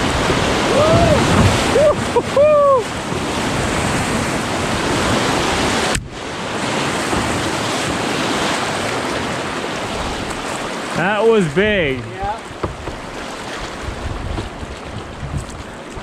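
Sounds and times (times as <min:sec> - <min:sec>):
rushing whitewater: 0:00.0 - 0:16.0
person whooping: 0:00.6 - 0:02.9.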